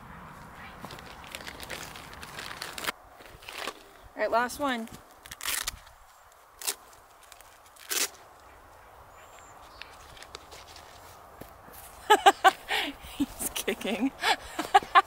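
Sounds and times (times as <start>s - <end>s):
rustling scrapes: 9.8s - 12.0s.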